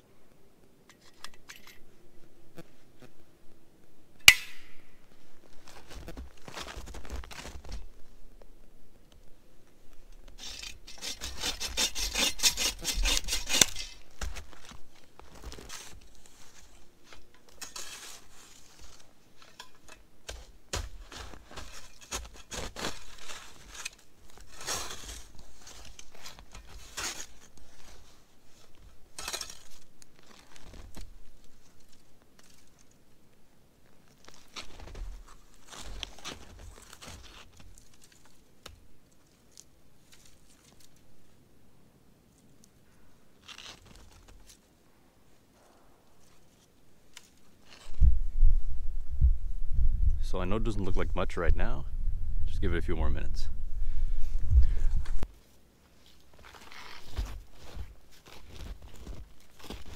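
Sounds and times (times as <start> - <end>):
scrapes and crunches: 5.1 - 8.0, 10.3 - 33.0, 33.8 - 41.1, 42.4 - 44.7, 46.1 - 48.1, 53.9 - 59.9
bow saw cutting a branch: 10.4 - 14.1.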